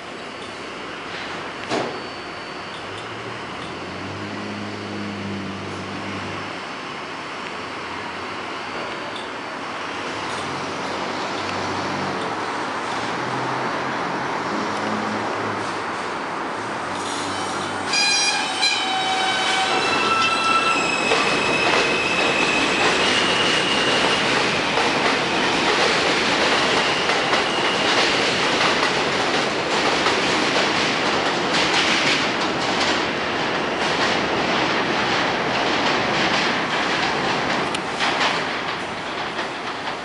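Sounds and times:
train wheels clattering on tracks: 16.9s - 40.0s.

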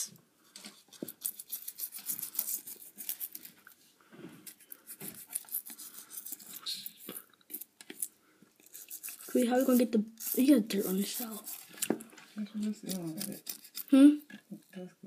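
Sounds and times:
scratches rubs and clicks: 0.6s - 3.6s, 4.4s - 13.9s.

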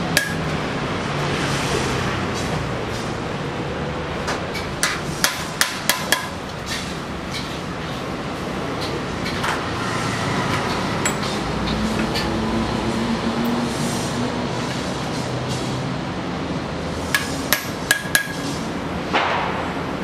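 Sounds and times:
hammer tapping a chisel on metal: 0.2s - 0.4s, 4.8s - 6.4s, 17.1s - 18.5s.

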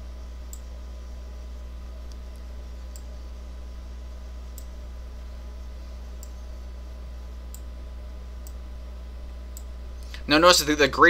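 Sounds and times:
low electrical hum: 0.0s - 11.0s
computer mouse clicks: 2.0s - 3.1s.

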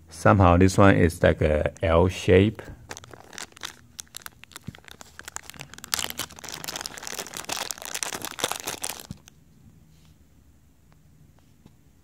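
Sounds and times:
plastic bag crinkling: 2.8s - 9.4s.

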